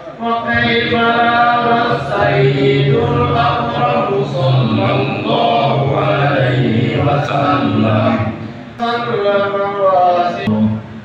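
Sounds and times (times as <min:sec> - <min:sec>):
men chanting in long melodic notes: 0:00.0 - 0:08.6.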